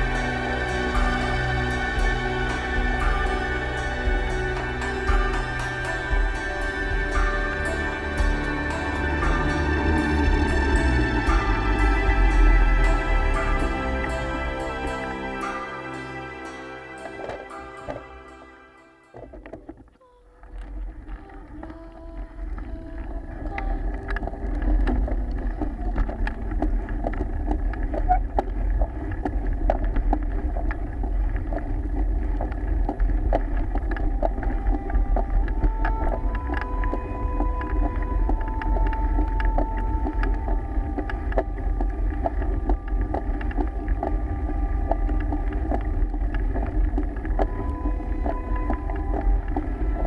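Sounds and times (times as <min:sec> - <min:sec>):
bike rattling on rough road: 0:19.2 - 0:50.0
wind buffeting microphone: 0:20.5 - 0:50.0.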